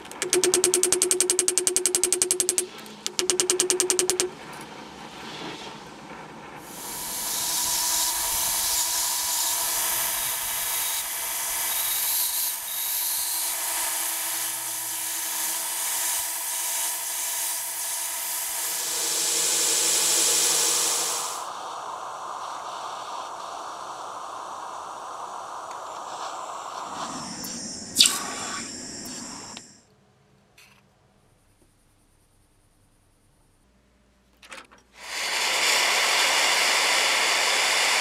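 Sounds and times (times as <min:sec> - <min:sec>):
gas torch hissing: 0:06.6 - 0:29.8, 0:35.0 - 0:38.0
belt grinder grinding blade: 0:06.7 - 0:19.3.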